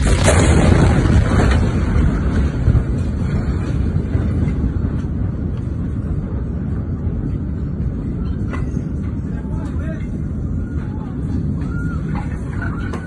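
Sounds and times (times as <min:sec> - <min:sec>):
explosion crack: 0:00.0 - 0:07.0
loud low rumble: 0:00.0 - 0:13.0.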